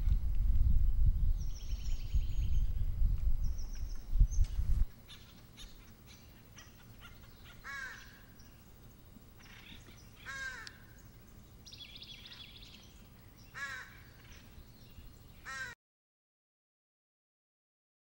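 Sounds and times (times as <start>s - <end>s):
bird trill: 3.4s - 8.7s, 9.4s - 15.7s
nuthatch yank calls: 5.1s - 8.2s.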